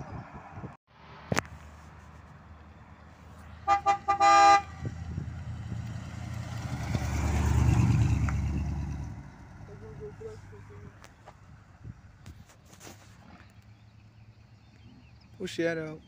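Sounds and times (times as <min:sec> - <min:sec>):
car engine rumbling past: 0:00.2 - 0:12.3
car horn toots: 0:03.6 - 0:04.9.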